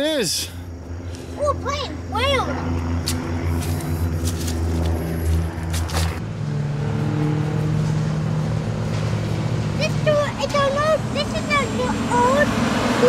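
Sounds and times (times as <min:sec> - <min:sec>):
higher drone: 0:00.0 - 0:10.2
engine droning: 0:00.0 - 0:13.0.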